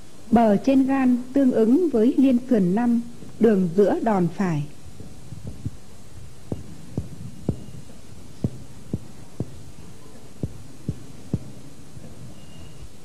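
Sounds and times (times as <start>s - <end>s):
finger tapping on chest: 5.0s - 5.8s, 6.5s - 9.8s, 10.4s - 12.2s.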